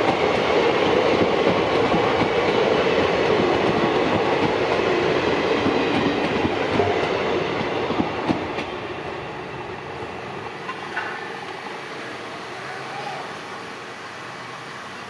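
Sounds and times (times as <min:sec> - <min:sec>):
train wheels rumbling and clicking: 0:00.0 - 0:09.0.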